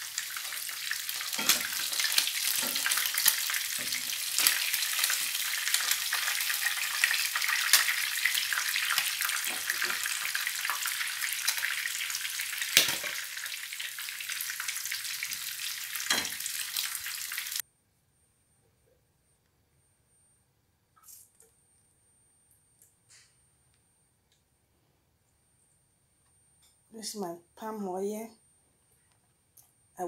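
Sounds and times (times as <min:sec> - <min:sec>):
fish deep-frying in oil: 0:00.0 - 0:17.6.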